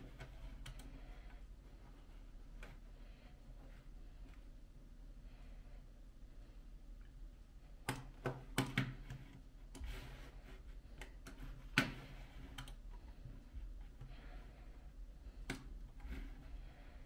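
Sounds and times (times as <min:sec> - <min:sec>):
faint room hum: 0:00.0 - 0:17.0
computer mouse clicking: 0:00.1 - 0:01.0, 0:07.8 - 0:10.0, 0:11.0 - 0:12.9.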